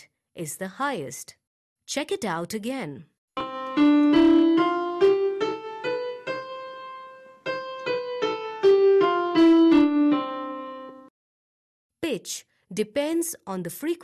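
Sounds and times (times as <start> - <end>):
piano playing a scale: 3.4 - 11.1.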